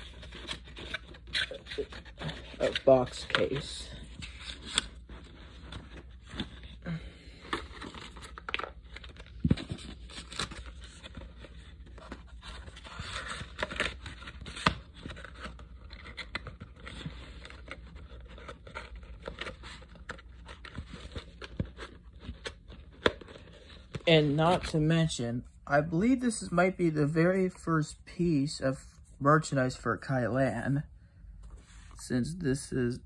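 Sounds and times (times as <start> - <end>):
items handled and packed: 0.0 - 24.8.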